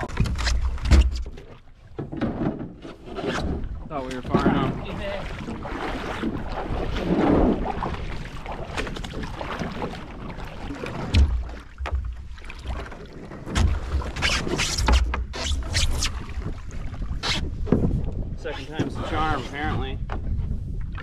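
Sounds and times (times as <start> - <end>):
knocks against canoe: 0.0 - 5.6, 10.8 - 15.4, 17.6 - 19.0
water sloshing and splashing: 0.0 - 21.0
wind gusts on microphone: 16.0 - 21.0.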